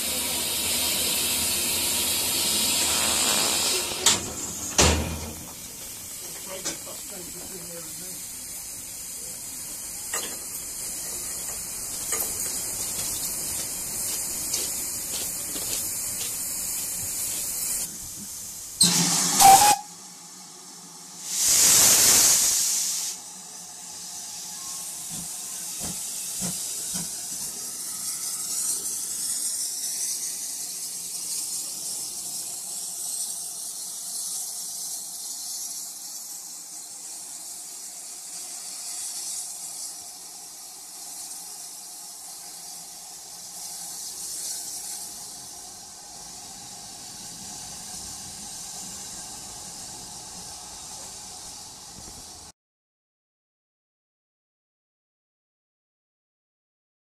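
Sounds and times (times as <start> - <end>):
loud steam blast: 0.0 - 11.1, 16.0 - 20.5, 21.1 - 52.5
rush of escaping steam: 0.0 - 52.5
steam hissing: 0.0 - 52.5.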